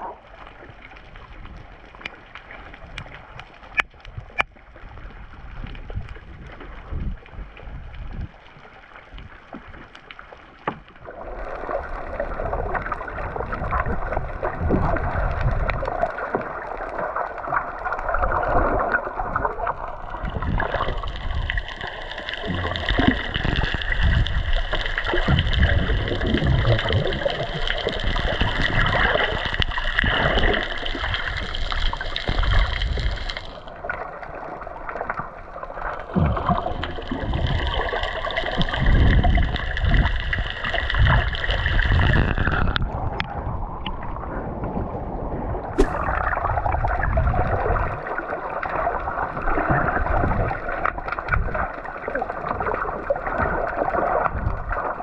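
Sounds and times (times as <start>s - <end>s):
muffled underwater sloshing: 0.0s - 55.0s
low bumps and splashes: 10.6s - 35.4s, 36.0s - 55.0s.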